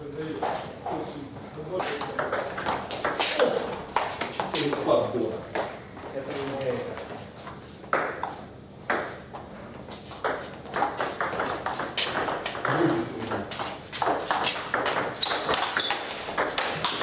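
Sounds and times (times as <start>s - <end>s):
table tennis ball knocks: 14.1s - 17.0s.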